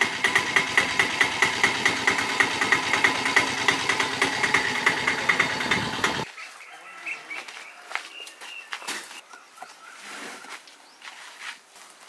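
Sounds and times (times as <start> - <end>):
small engine knocking: 0.0 - 6.3.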